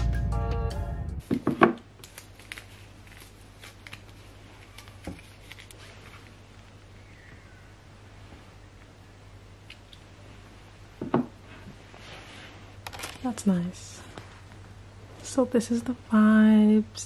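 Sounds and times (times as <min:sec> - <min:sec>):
background music: 0:00.0 - 0:01.2.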